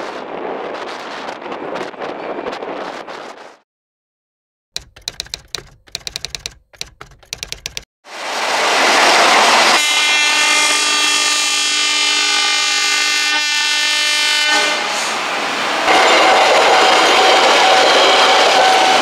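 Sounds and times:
train rumbling past: 8.1 - 12.6, 14.6 - 19.0
locomotive horn blast: 9.7 - 15.2.

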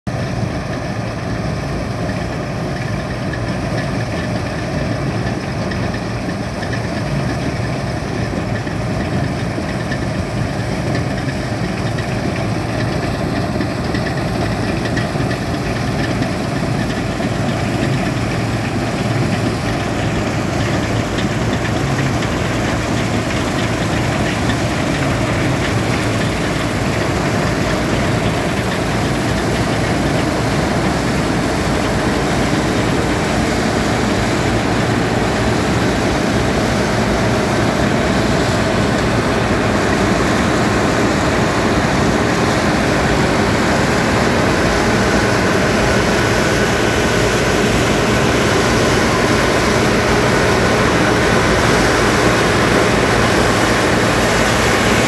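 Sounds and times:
combine harvester engine running: 0.1 - 55.0.

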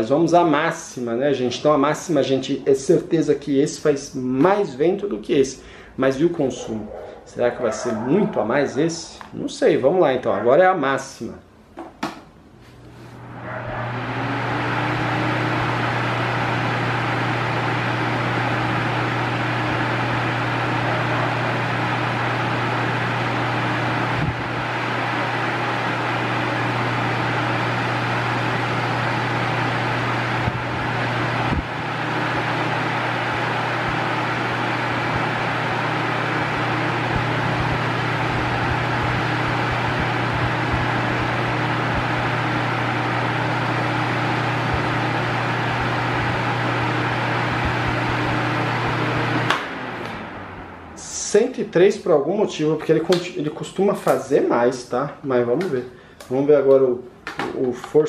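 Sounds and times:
fan running: 0.0 - 58.0.

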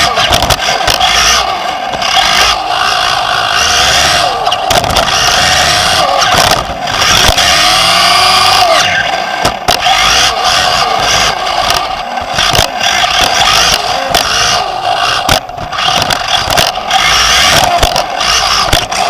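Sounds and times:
chassis knocking on bumps: 0.0 - 1.3, 4.6 - 8.6, 9.4 - 19.0
electric motor whine: 0.0 - 19.0.

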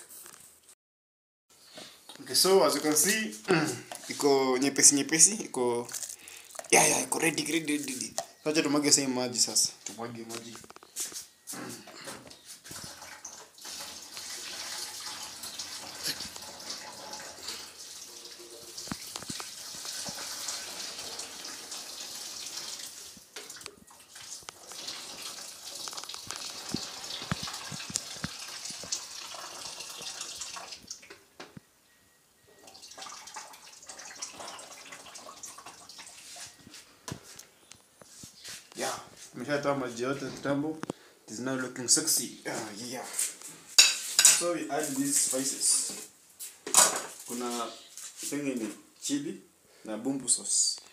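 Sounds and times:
water pouring into a sink: 12.8 - 31.1, 32.6 - 36.3.

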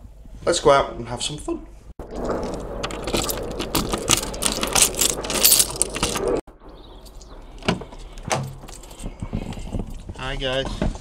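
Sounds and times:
keys jangling: 2.9 - 6.4.

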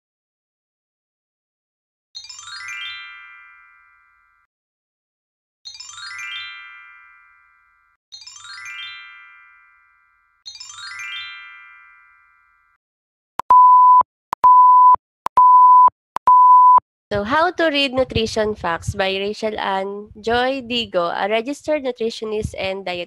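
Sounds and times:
bell-like chime jingles: 2.2 - 4.4, 5.7 - 12.8
heart monitor beep: 13.4 - 16.8.

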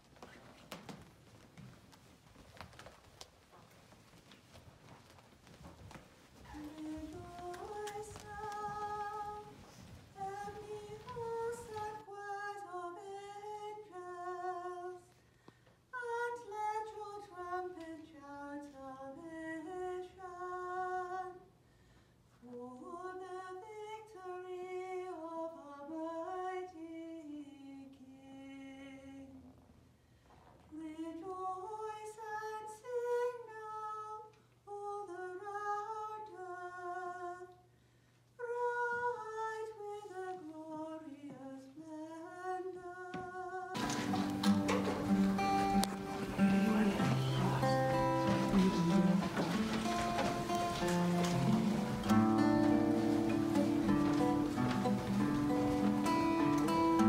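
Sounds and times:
person chanting unaccompanied: 43.8 - 52.5.

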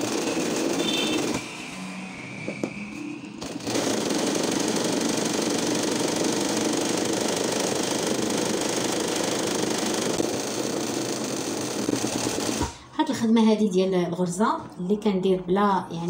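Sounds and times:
sewing machine stitching fast: 0.0 - 1.4, 3.5 - 12.8.

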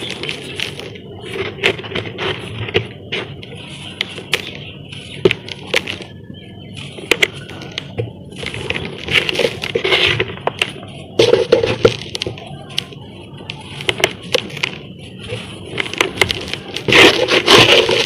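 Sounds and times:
cement crumbling in hands: 15.8 - 18.0.

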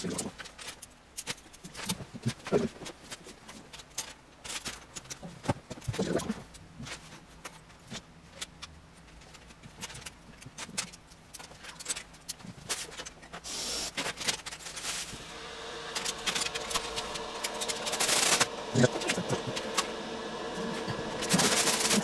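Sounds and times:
steady hum: 13.4 - 22.0.

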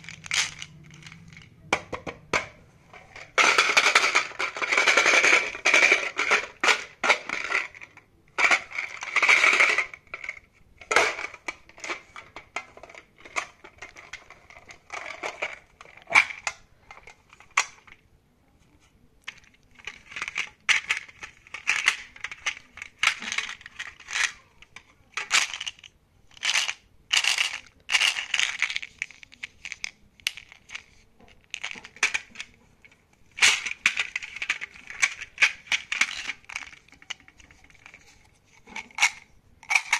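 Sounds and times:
plastic tubes clicking in metal tin: 0.0 - 1.5, 19.2 - 32.6, 33.3 - 39.9.

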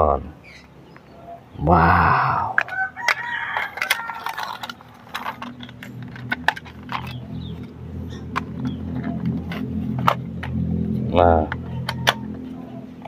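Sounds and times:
low steady hum: 0.0 - 13.0
plastic toy parts clicking: 2.6 - 10.6, 11.5 - 12.3.

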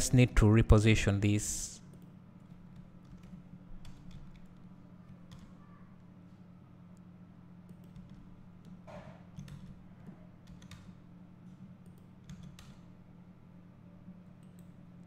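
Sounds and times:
low electrical hum: 0.0 - 15.0
computer mouse clicks: 7.7 - 8.8, 14.4 - 14.8.

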